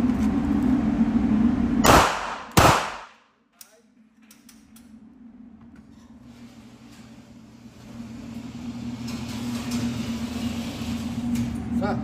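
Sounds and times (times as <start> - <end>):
pistol shots: 1.8 - 3.2.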